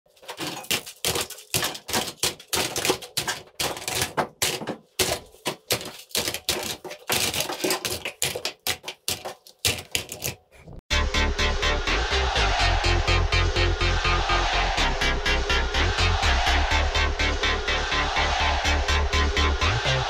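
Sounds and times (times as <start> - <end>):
plastic toy guns clattering: 0.1 - 10.4.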